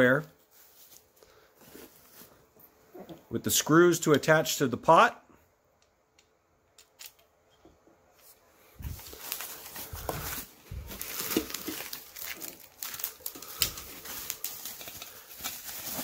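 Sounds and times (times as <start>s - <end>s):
bubble wrap crinkling: 8.8s - 16.0s.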